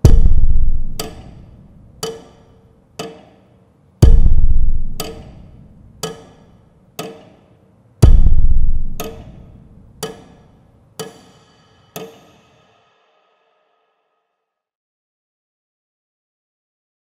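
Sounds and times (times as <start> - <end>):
deep booming drum hits: 0.0 - 1.0, 4.0 - 5.0, 8.0 - 9.0
sharp percussion ticks: 0.0 - 7.4, 8.0 - 11.4.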